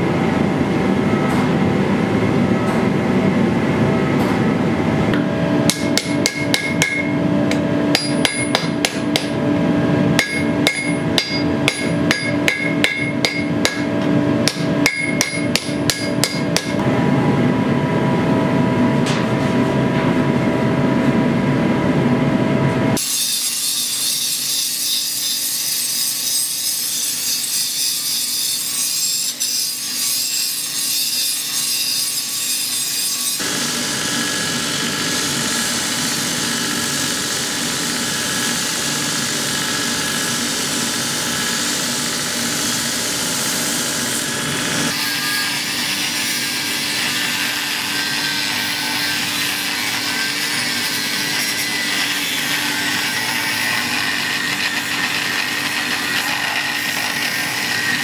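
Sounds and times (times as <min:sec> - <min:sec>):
forge burner roaring: 0:00.0 - 0:23.0, 0:33.3 - 0:46.9
hammer striking metal on anvil: 0:05.1 - 0:09.4, 0:10.2 - 0:16.8
belt grinder grinding metal: 0:44.9 - 0:58.0.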